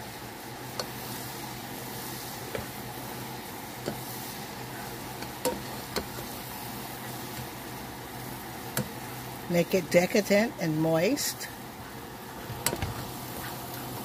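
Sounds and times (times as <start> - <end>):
butter and chocolate sizzling: 0.0 - 14.0
spatula tapping pan: 5.2 - 6.3.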